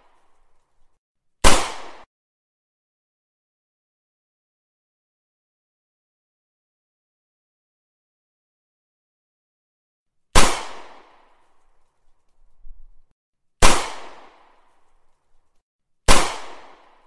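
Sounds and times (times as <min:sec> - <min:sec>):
pistol gunshot with echo: 0:01.4 - 0:02.1, 0:10.4 - 0:11.4, 0:13.6 - 0:14.6, 0:16.1 - 0:17.0.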